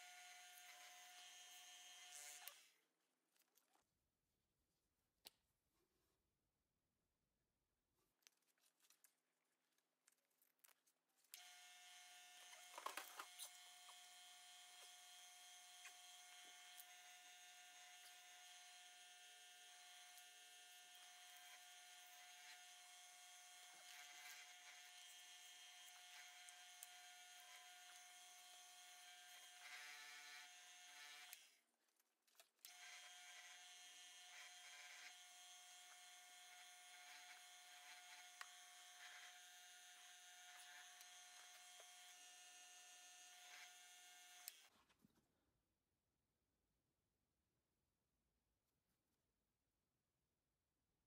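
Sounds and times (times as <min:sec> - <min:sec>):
faint lathe motor hum: 0:11.4 - 0:31.4, 0:32.7 - 0:44.6.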